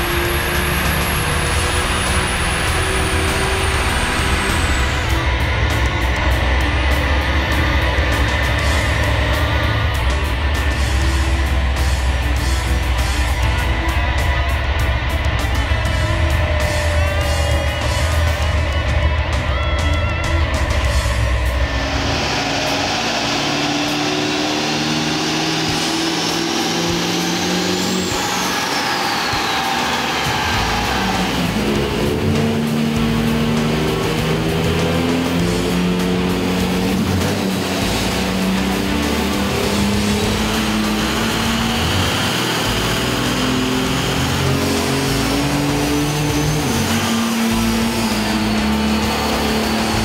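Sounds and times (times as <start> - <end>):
diesel engine roaring under load: 0.0 - 50.0.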